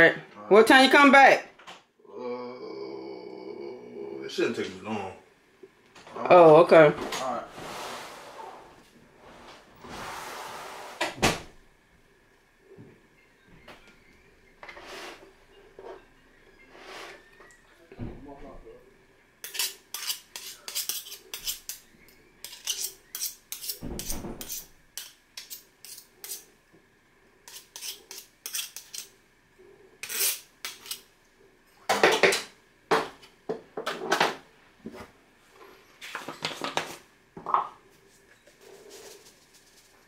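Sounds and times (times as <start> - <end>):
metal spoon scraping plastic bowl: 19.4 - 26.5, 27.5 - 29.1, 30.0 - 31.0.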